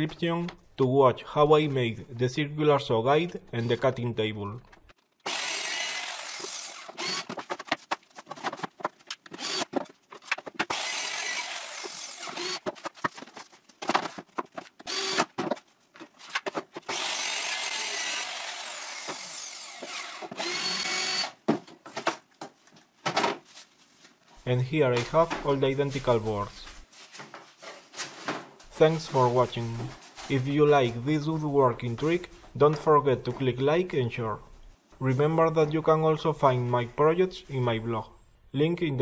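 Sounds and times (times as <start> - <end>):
cordless drill running: 5.2 - 7.4, 9.4 - 9.7, 10.7 - 12.6, 14.8 - 15.3, 16.9 - 21.4
circular saw cutting plywood: 5.2 - 7.5, 9.4 - 9.8, 10.6 - 12.7, 14.8 - 15.3, 16.9 - 21.4
boards knocking and clattering: 6.9 - 10.8, 12.4 - 16.9, 21.4 - 23.5.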